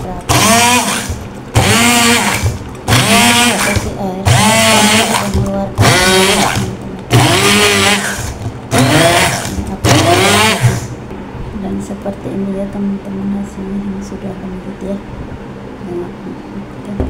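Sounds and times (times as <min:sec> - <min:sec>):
hand blender motor whining: 0:00.3 - 0:10.9.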